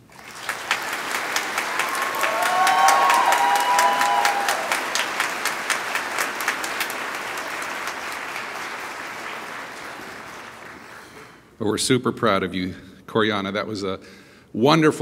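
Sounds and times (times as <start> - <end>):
audience applauding: 0.0 - 11.4
cheers: 0.4 - 8.7.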